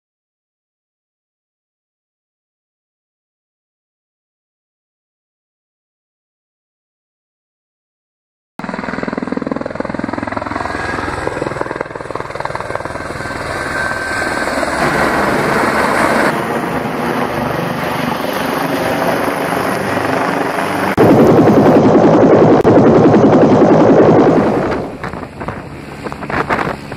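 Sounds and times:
helicopter flying low overhead: 0:08.6 - 0:26.9.

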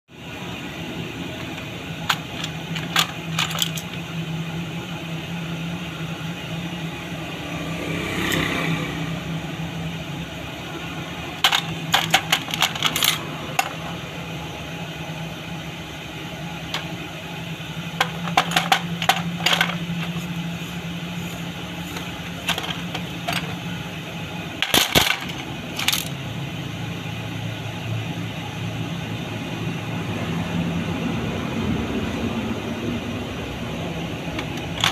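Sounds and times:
small metal parts clinking: 0:01.4 - 0:04.0, 0:11.4 - 0:14.0, 0:16.7 - 0:17.0, 0:17.9 - 0:20.4, 0:21.9 - 0:23.6, 0:24.6 - 0:26.2, 0:34.4 - 0:34.9.

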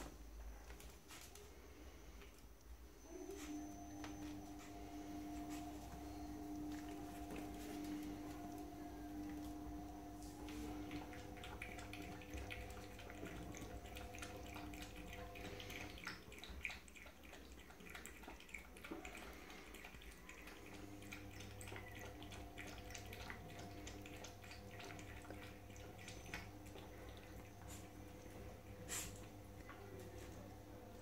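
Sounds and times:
dog lapping water: 0:10.4 - 0:31.0.

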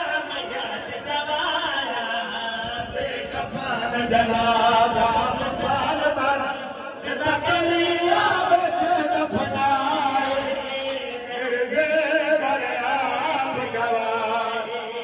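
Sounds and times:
men chanting together: 0:00.0 - 0:10.0.

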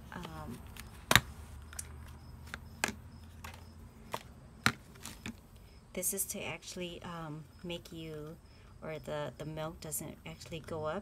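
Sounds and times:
plastic parts clicking and knocking: 0:00.2 - 0:05.4.

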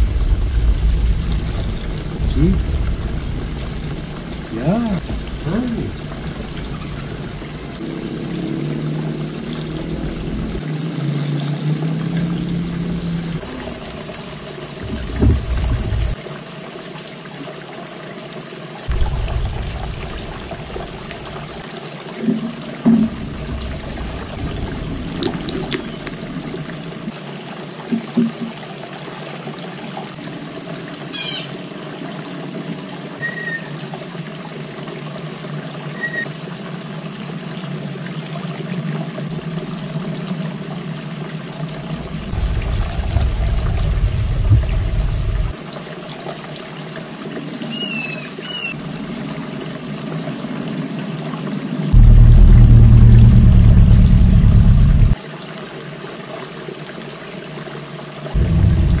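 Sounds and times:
low rumble: 0:00.0 - 0:07.8, 0:14.8 - 0:16.2, 0:18.9 - 0:21.6, 0:23.1 - 0:27.0, 0:41.9 - 0:45.5, 0:52.0 - 0:55.2, 0:58.4 - 0:59.0
fountain water trickling: 0:00.0 - 0:27.9, 0:28.5 - 0:59.0.

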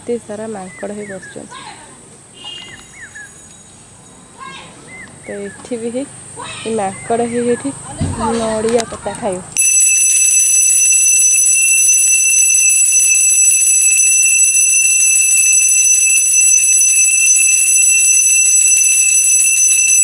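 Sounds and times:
brass hand bell ringing: 0:09.6 - 0:20.0.

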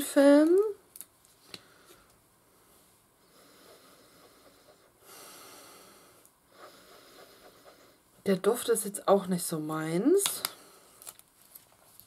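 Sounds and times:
person sniffing and breathing: 0:01.6 - 0:08.1.

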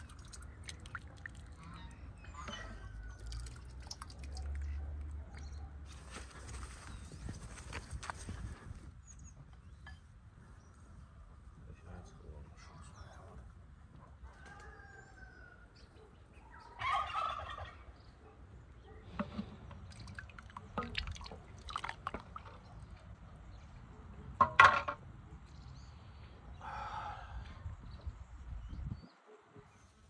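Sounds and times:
turkey gobbling: 0:16.8 - 0:17.9.

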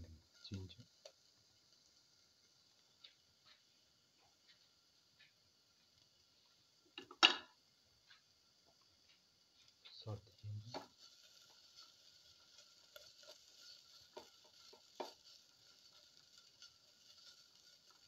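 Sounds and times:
food sizzling in oil: 0:00.0 - 0:18.0
spatula scraping a pan: 0:10.7 - 0:18.0.

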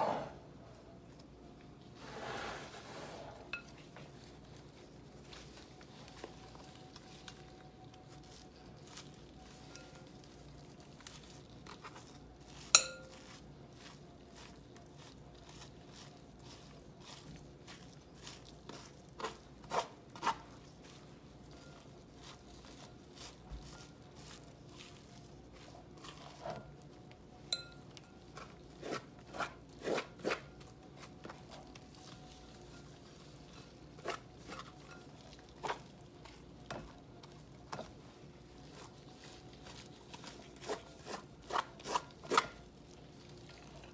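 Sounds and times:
fork scraping squash: 0:02.0 - 0:03.5, 0:11.0 - 0:26.8, 0:28.4 - 0:35.9, 0:38.6 - 0:42.6
fork clinking on glass bowl: 0:12.7 - 0:13.3, 0:27.5 - 0:28.0.

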